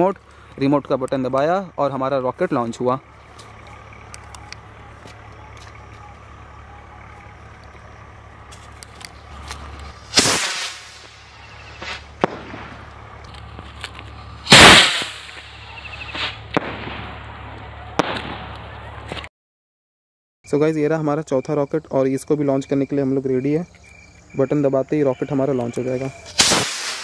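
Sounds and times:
firework rocket whoosh: 0:09.9 - 0:12.9, 0:14.4 - 0:18.5, 0:26.3 - 0:27.0
firework bang: 0:10.0 - 0:13.0, 0:14.4 - 0:19.3, 0:26.3 - 0:27.0.

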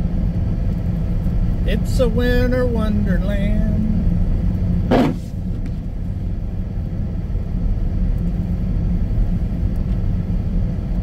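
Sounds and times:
car engine and tyre noise: 0:00.0 - 0:11.0
brief knock: 0:04.9 - 0:05.8.

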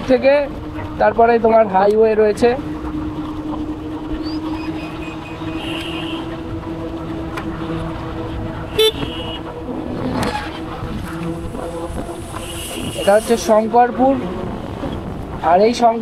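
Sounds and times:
electric scooter hum: 0:00.0 - 0:16.0
road and wind noise: 0:00.0 - 0:16.0
short high horn beeps: 0:04.9 - 0:06.4, 0:08.7 - 0:09.5, 0:12.2 - 0:13.3.

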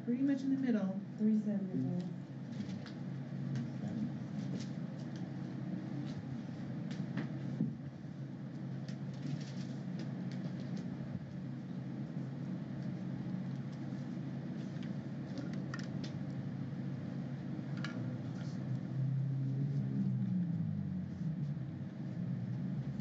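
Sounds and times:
ventilation hum: 0:00.0 - 0:23.0
pages rustling: 0:08.9 - 0:10.9.

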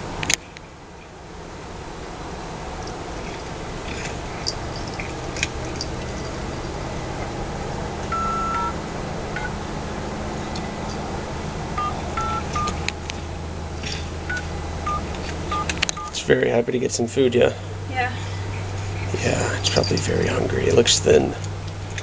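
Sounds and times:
steady low hum: 0:00.0 - 0:22.0
phone keypad beeps: 0:08.1 - 0:08.7, 0:11.8 - 0:12.8, 0:14.3 - 0:16.2.

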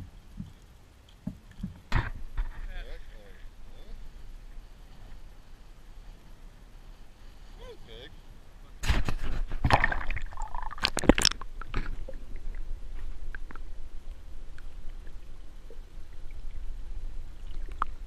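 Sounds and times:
muffled underwater microphone noise: 0:00.0 - 0:18.0
water splashing: 0:08.8 - 0:18.0
faint clicks: 0:13.3 - 0:14.8.

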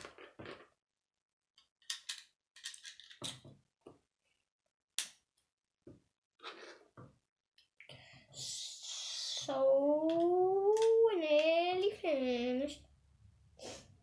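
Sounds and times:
plastic bricks clicking: 0:01.6 - 0:03.4.

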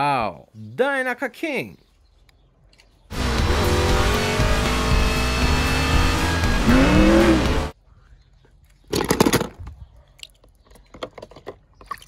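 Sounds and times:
race cars with music: 0:03.1 - 0:07.8
water drips and clinks: 0:10.1 - 0:12.0.

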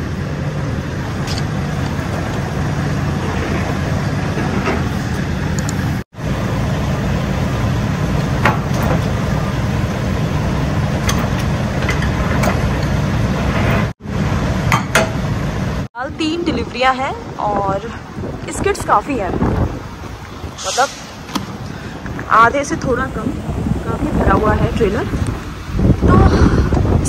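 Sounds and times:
diesel truck engine idling: 0:00.0 - 0:16.1.

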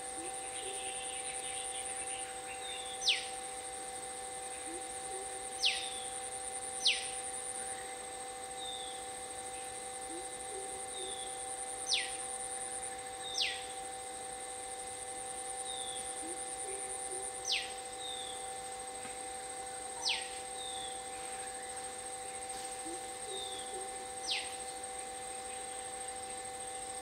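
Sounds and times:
high-pitched drone: 0:00.0 - 0:27.0.

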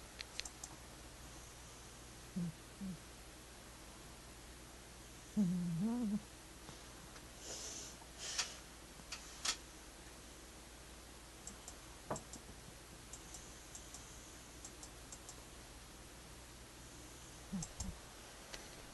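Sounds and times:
faint clicks and ticks: 0:00.0 - 0:00.8, 0:11.4 - 0:12.5, 0:13.1 - 0:15.5, 0:17.5 - 0:18.6
low steady hum: 0:00.0 - 0:18.9.

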